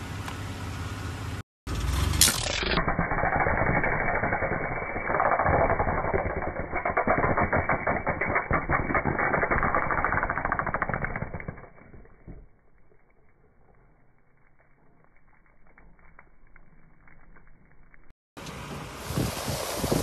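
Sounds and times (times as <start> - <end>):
tyre crushing brittle objects: 1.7 - 12.4.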